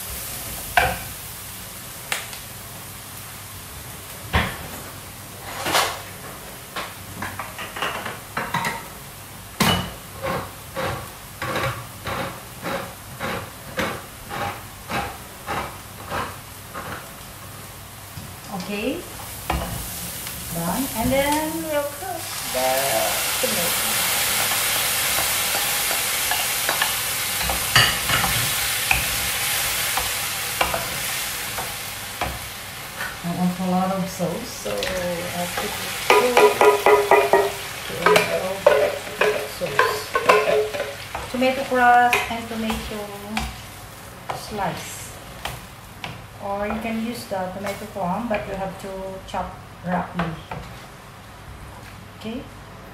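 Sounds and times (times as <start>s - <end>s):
onions frying: 0.0s - 52.3s
vegetables sizzling in a wok: 0.0s - 52.8s
wooden spoon scraping a pan: 9.9s - 17.2s, 18.5s - 49.0s.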